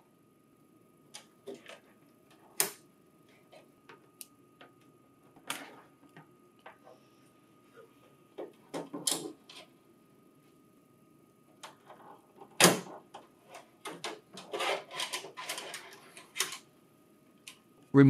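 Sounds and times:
cable rustling: 0:13.2 - 0:16.7.

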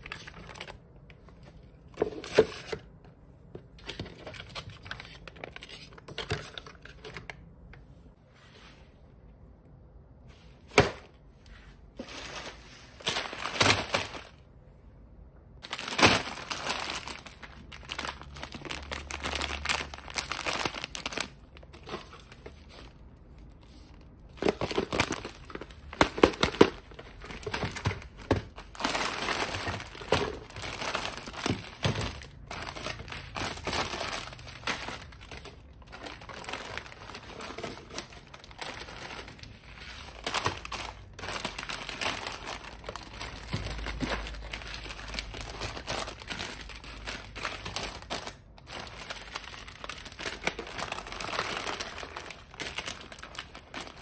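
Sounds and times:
plastic wrappers crinkling: 0:00.0 - 0:03.0, 0:12.0 - 0:14.5, 0:15.6 - 0:54.0.

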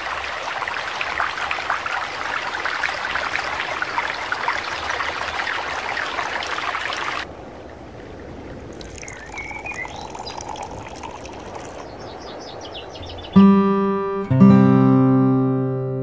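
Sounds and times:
stream rushing over rocks: 0:00.0 - 0:07.3, 0:08.6 - 0:12.0
tea pouring into glass: 0:08.7 - 0:11.8.

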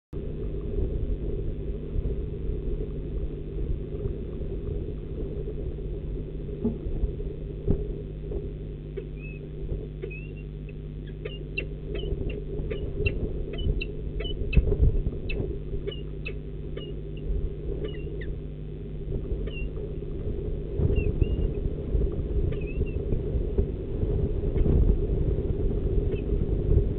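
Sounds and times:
steady low rumble: 0:00.1 - 0:26.9
short high bird chirps: 0:09.0 - 0:09.4, 0:10.0 - 0:14.4.

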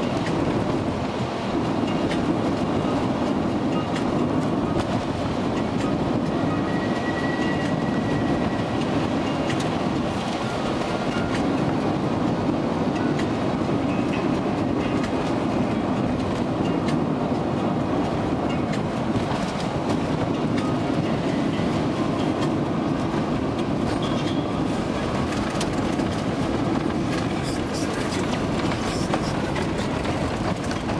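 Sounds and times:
tyres rolling on wet road: 0:00.0 - 0:30.9
car engine drone: 0:21.7 - 0:30.9.

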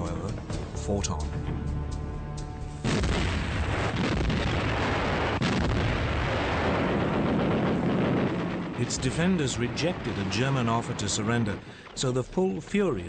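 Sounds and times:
artillery fire and explosions: 0:02.8 - 0:12.2
sharp crack: 0:02.9 - 0:12.1.

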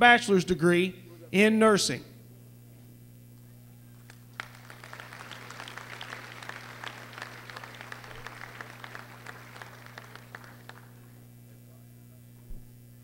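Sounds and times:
crowd applauding: 0:04.0 - 0:11.2.

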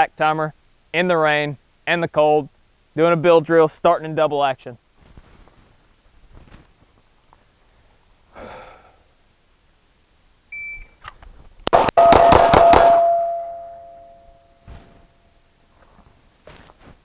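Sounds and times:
shot timer beep: 0:10.5 - 0:11.0, 0:11.9 - 0:14.3
rapid pistol shots: 0:11.7 - 0:13.3
struck steel ringing: 0:11.8 - 0:15.4.

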